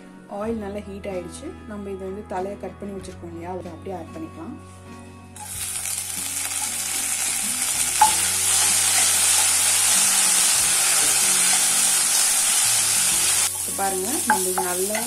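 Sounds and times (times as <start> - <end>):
leaves sizzling in hot oil: 5.4 - 15.0.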